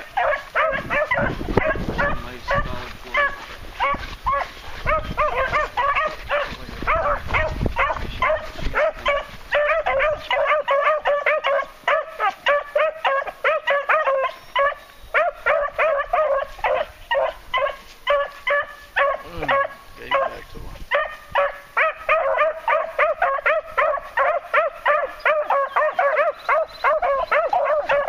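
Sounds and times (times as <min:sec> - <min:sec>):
beagles baying: 0:00.0 - 0:28.0.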